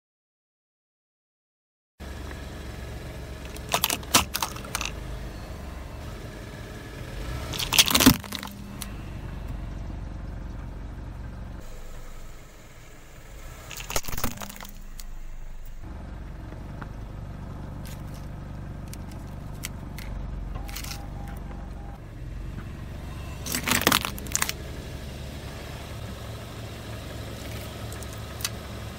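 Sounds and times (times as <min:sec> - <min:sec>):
car rumble: 0:02.0 - 0:28.9
plastic cracking and crunching: 0:03.4 - 0:04.9, 0:07.5 - 0:08.6, 0:13.7 - 0:15.1, 0:20.7 - 0:21.0, 0:23.4 - 0:24.6.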